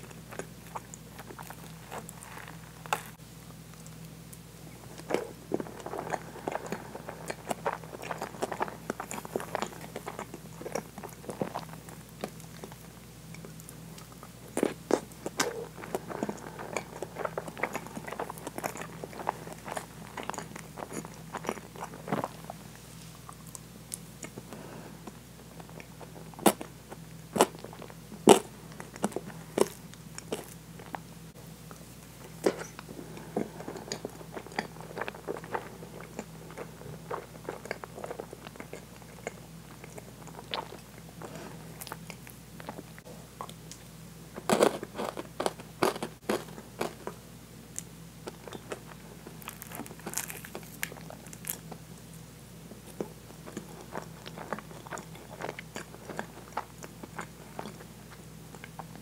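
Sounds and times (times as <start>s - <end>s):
wet chewing and mouth smacks: 52.8s - 59.0s.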